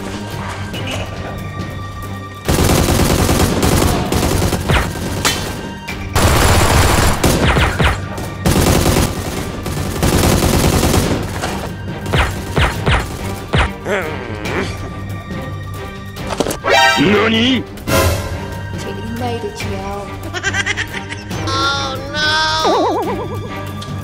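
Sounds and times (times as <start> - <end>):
machine-gun bursts: 2.5 - 5.2, 6.2 - 11.4
gunshots with falling whines: 6.2 - 11.3.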